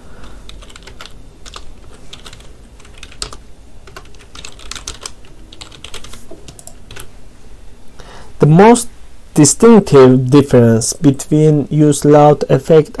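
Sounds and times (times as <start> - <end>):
typing on a keyboard: 0.5 - 7.1.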